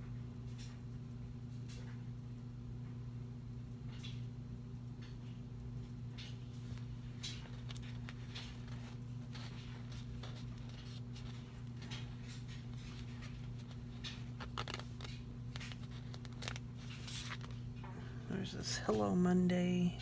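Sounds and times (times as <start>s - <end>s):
steady low hum: 0.0s - 20.0s
paper rustling: 6.2s - 17.8s.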